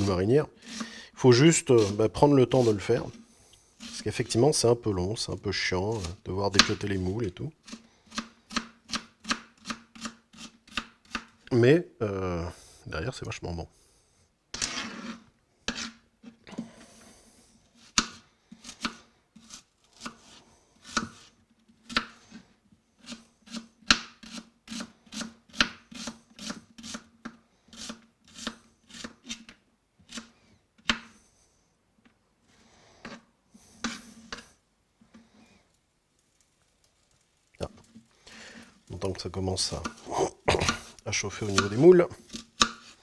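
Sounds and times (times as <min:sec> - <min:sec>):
knife scraping pieces together: 0:00.0 - 0:03.2, 0:03.8 - 0:04.2, 0:07.6 - 0:11.3, 0:14.5 - 0:16.4, 0:23.0 - 0:27.1, 0:27.7 - 0:31.1, 0:33.8 - 0:34.5, 0:39.7 - 0:43.0
knife chopping on plastic board: 0:07.7 - 0:11.3, 0:41.5 - 0:42.9.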